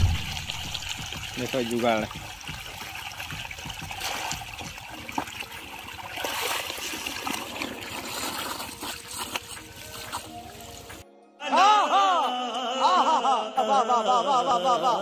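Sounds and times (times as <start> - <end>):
small water splashes: 0.0 - 11.0
water running and trickling: 0.0 - 11.0.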